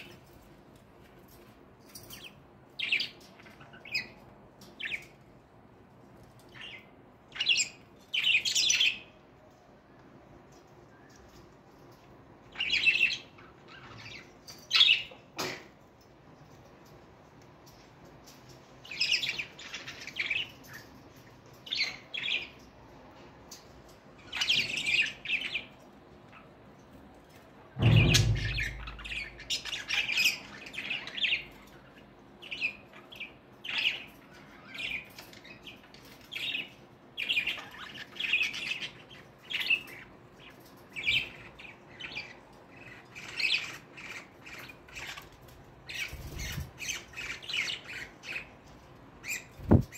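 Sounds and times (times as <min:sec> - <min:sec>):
dull low bump: 0:27.8 - 0:29.4.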